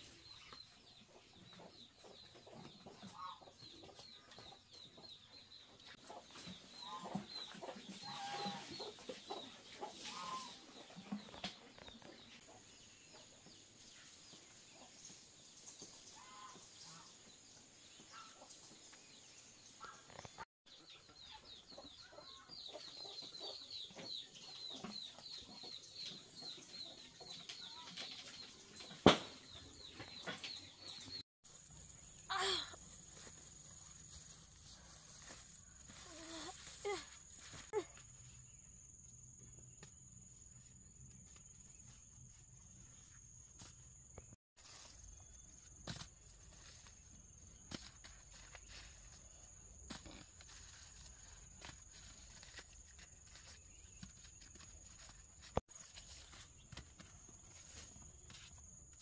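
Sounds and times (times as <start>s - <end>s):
chickens clucking: 1.0s - 13.3s.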